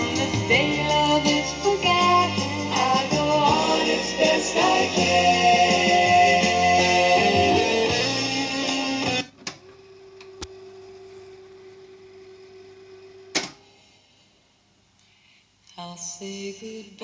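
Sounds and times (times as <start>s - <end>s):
guitar music from speakers: 0.0s - 9.3s
faint steady hum: 9.3s - 17.0s.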